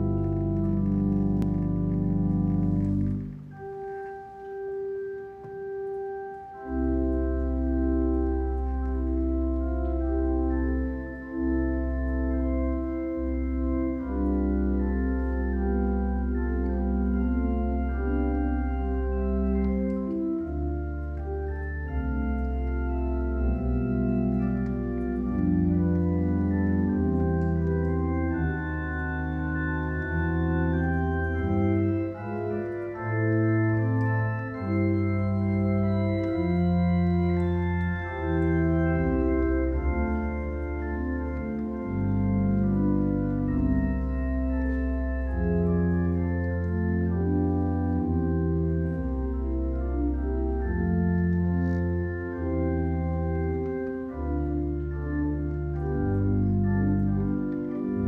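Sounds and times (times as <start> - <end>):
church organ chords: 0.0 - 58.0
deep organ pedal bass: 0.0 - 58.0.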